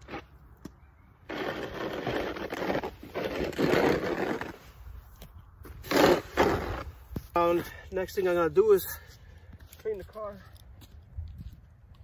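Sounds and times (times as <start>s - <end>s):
snow shovel scraping pavement: 0.0s - 0.3s, 1.2s - 4.9s, 5.6s - 7.6s.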